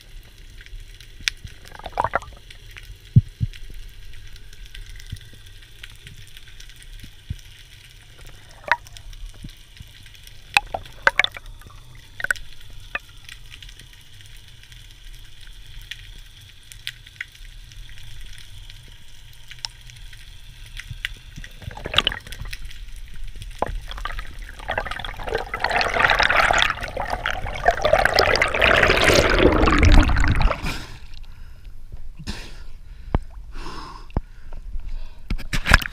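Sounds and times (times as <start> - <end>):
water splashing at surface: 1.7 - 2.4, 8.2 - 9.0, 10.5 - 13.0, 21.5 - 22.7, 23.6 - 31.1
sharp underwater clicks: 8.6 - 13.6
rush of moving water: 10.6 - 11.4, 23.6 - 31.0.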